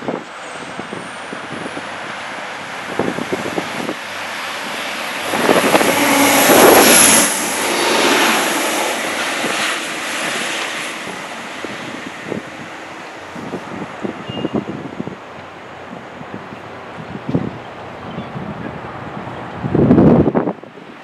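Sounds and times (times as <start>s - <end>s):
diesel train passing: 0.0s - 21.0s.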